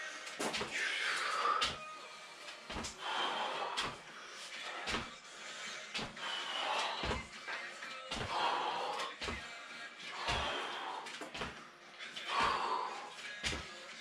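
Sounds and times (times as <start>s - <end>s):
feet thumping on concrete floor: 0.4s - 0.8s, 1.6s - 1.8s, 2.7s - 3.0s, 3.8s - 4.0s, 4.8s - 5.2s, 5.9s - 7.4s, 8.1s - 9.5s, 10.2s - 10.6s, 11.2s - 11.6s, 13.4s - 13.7s.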